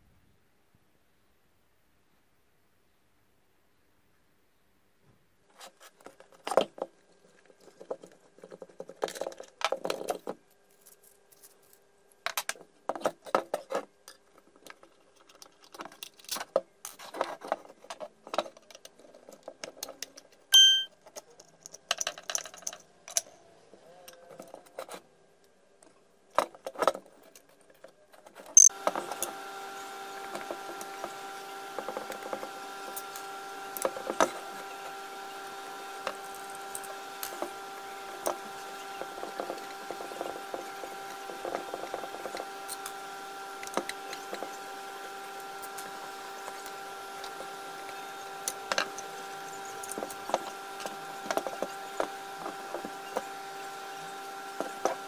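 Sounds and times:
steady hum with hiss: 22.0 - 55.0.

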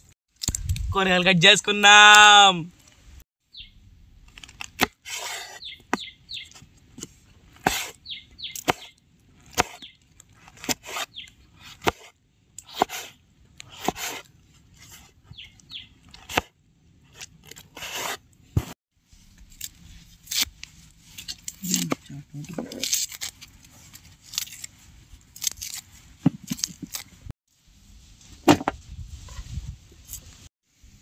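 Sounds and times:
small birds chirping: 3.5 - 3.8, 5.5 - 6.6, 8.0 - 9.0, 9.7 - 10.0, 11.0 - 11.6, 15.2 - 16.3
knife slicing: 4.4 - 6.0, 7.0 - 15.2, 16.1 - 16.5, 17.1 - 18.8, 19.5 - 22.0, 22.6 - 27.1
knife chopping on wooden board: 7.6 - 8.0, 8.6 - 8.9, 9.5 - 9.8, 10.6 - 12.1, 12.7 - 13.1, 13.7 - 14.2, 16.2 - 16.5.

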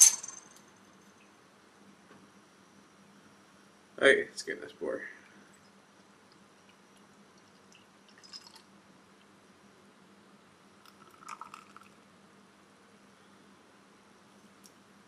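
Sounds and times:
beer pouring into a glass: 6.6 - 8.8, 10.8 - 12.0.

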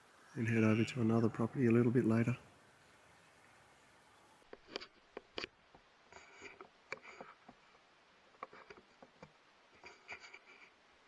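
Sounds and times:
scratchy rustling: 6.1 - 7.6, 9.7 - 10.8.

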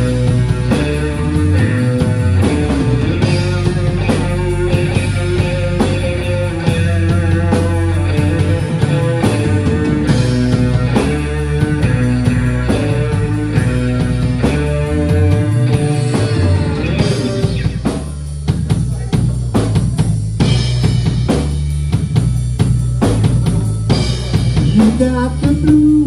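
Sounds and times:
live blues rock band: 0.0 - 26.0.

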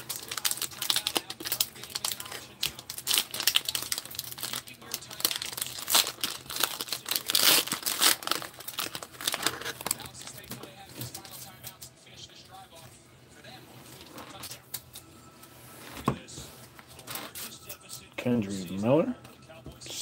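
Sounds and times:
plastic wrapper crinkling and tearing: 0.0 - 11.8.

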